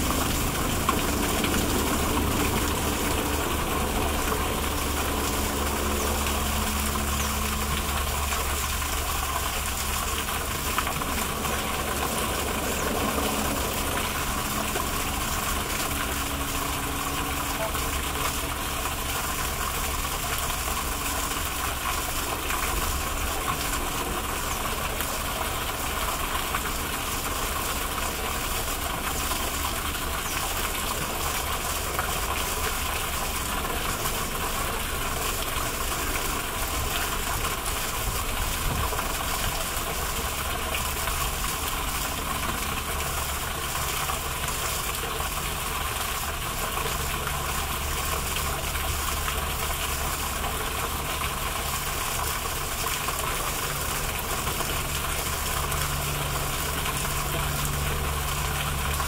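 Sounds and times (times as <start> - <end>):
low rumble: 0.0 - 17.6
fountain water rushing: 0.0 - 59.0.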